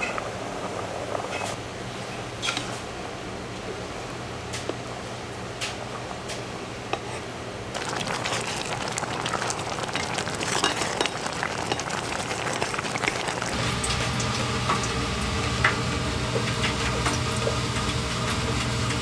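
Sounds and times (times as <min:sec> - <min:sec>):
sauce bubbling and popping: 0:07.7 - 0:15.8
spatula stirring in a pot: 0:07.8 - 0:13.6.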